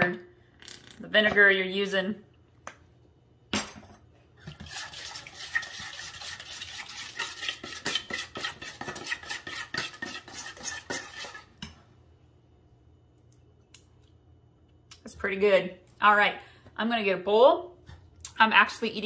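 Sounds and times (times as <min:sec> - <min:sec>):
metal spoon stirring in bowl: 0:04.4 - 0:11.8.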